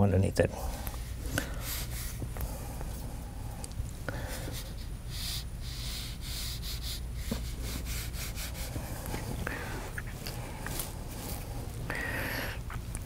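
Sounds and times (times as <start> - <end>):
steady low hum: 0.0 - 13.0
paintbrush scrubbing on paper: 4.5 - 9.2.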